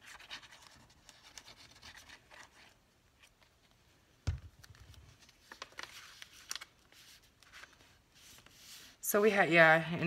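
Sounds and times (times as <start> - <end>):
paper rubbing and rustling: 0.0 - 3.3, 5.0 - 9.0.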